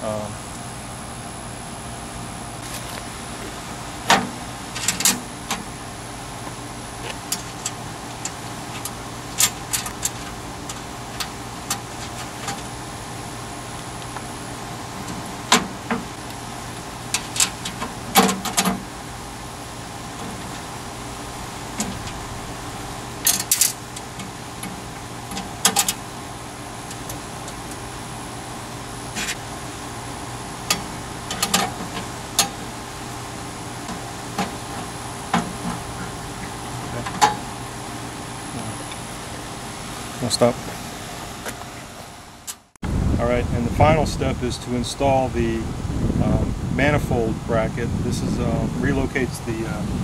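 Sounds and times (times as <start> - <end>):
steady hum: 0.0 - 50.0
metal clicks and clanks: 4.1 - 5.7, 7.0 - 12.7, 17.1 - 18.8, 21.8 - 22.2, 23.2 - 26.0, 30.7 - 32.6.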